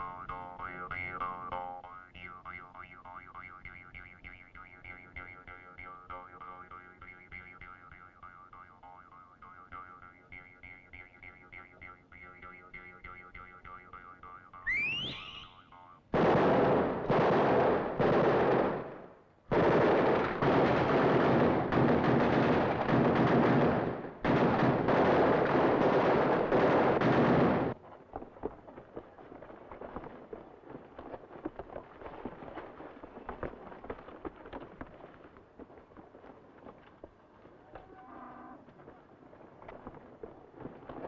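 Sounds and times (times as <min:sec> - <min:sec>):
faint pops and crackle: 0:00.0 - 0:38.0, 0:38.6 - 0:41.0
machine-gun fire: 0:16.1 - 0:27.8.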